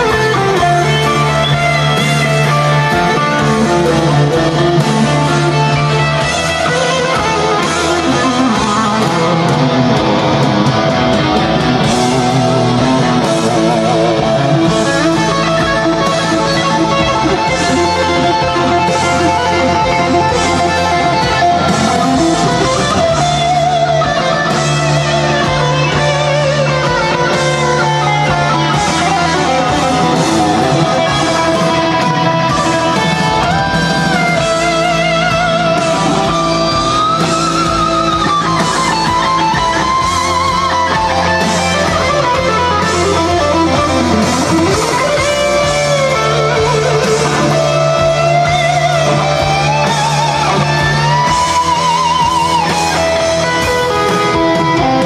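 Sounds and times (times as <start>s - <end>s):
guitar music: 0.0s - 55.0s.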